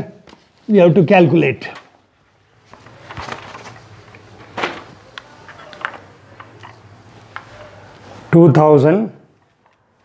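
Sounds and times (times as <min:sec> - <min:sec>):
paper rustling: 0:02.6 - 0:06.0.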